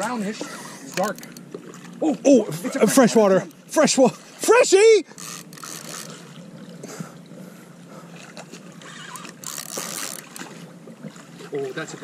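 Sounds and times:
fish thrashing water splashing: 0:08.2 - 0:11.4.

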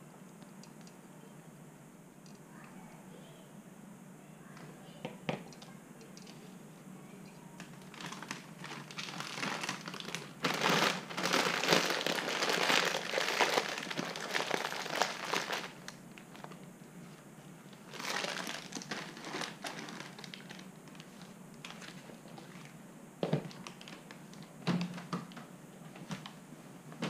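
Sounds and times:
plastic packaging crinkling: 0:07.6 - 0:16.7, 0:17.7 - 0:22.7, 0:23.5 - 0:24.5.

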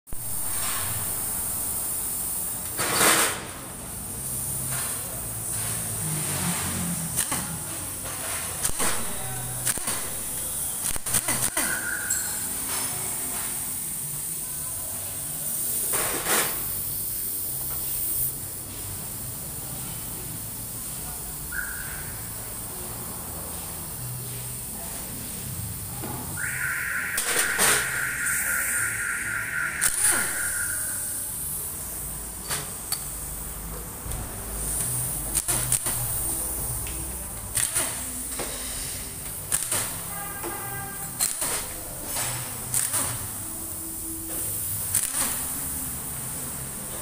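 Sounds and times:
steady workshop hiss: 0:00.1 - 0:47.0
pneumatic tool air hiss: 0:00.2 - 0:22.8, 0:26.3 - 0:33.4, 0:37.5 - 0:46.6
loud air blast: 0:26.4 - 0:31.6.

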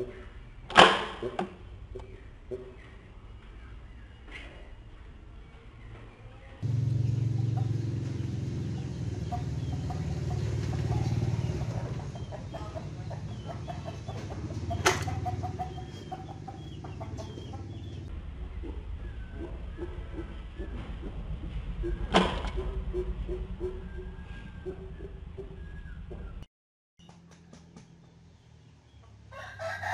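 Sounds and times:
chickens clucking: 0:00.0 - 0:26.4
low hum: 0:06.6 - 0:12.2, 0:16.7 - 0:26.5.

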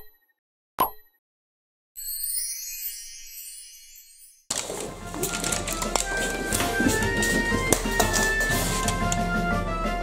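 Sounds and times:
background music with held notes: 0:04.5 - 0:10.0.

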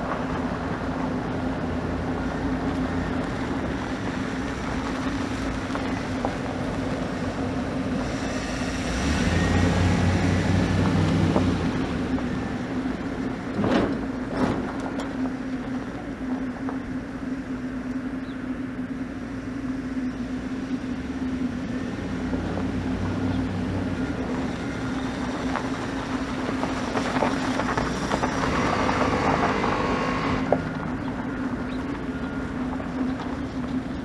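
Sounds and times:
rush of noise: 0:00.0 - 0:17.9
truck engine running: 0:00.0 - 0:34.0.

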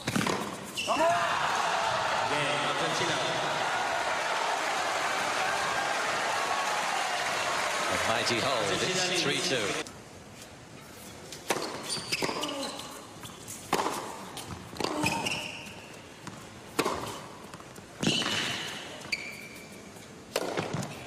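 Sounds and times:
racket hitting tennis ball: 0:00.0 - 0:00.8, 0:13.6 - 0:15.4, 0:16.3 - 0:18.8, 0:20.3 - 0:21.0
shoe squeaks on court: 0:00.0 - 0:01.0, 0:11.0 - 0:13.6, 0:14.9 - 0:15.9, 0:18.0 - 0:19.8.

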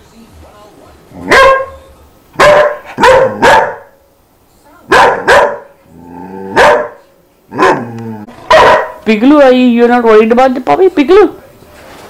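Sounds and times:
small dog barking: 0:01.2 - 0:01.8, 0:02.4 - 0:04.0, 0:04.9 - 0:05.8, 0:06.5 - 0:07.9, 0:08.5 - 0:09.0.

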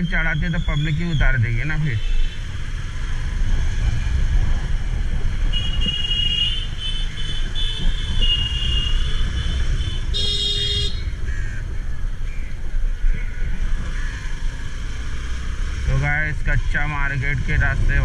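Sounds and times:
motorcycle engine rumble: 0:00.0 - 0:18.0
vehicle horns honking: 0:05.5 - 0:11.1.

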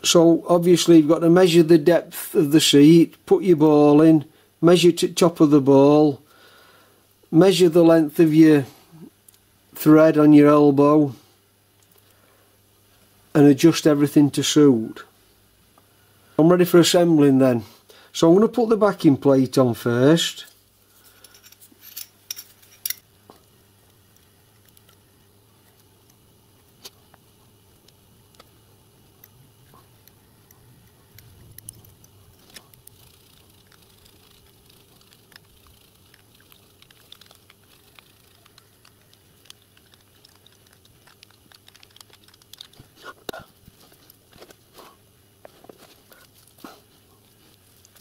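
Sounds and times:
small metal parts clicking: 0:21.2 - 0:23.1.

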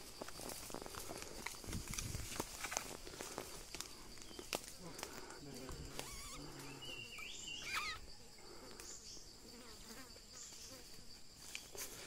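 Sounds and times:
insects droning: 0:00.0 - 0:12.0.

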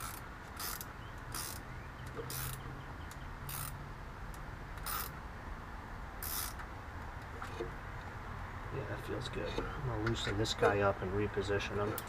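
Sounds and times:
hose clamp ratcheting rasps: 0:00.0 - 0:05.2, 0:06.2 - 0:06.7.

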